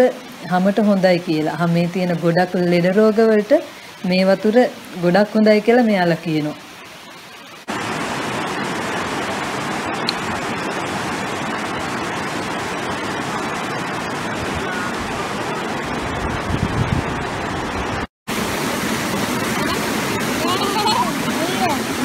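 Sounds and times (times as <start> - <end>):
water cascading over terraces: 0.0 - 22.0.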